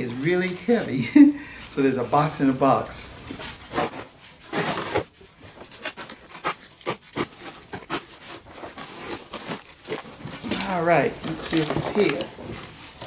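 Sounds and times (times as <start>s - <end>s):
packing tape scraping: 3.3s - 13.0s
cardboard box being opened: 3.4s - 13.0s.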